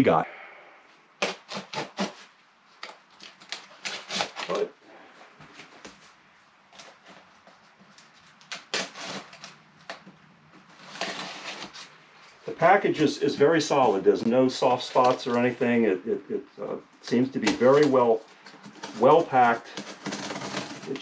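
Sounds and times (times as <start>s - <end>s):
knife cutting tape and cardboard: 1.2s - 4.7s, 8.2s - 10.0s, 10.8s - 11.9s, 17.4s - 21.0s.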